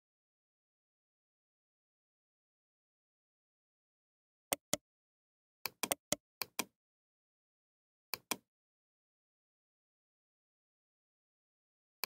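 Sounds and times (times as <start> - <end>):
computer mouse clicking: 4.5 - 4.8, 5.7 - 6.7, 8.2 - 8.4.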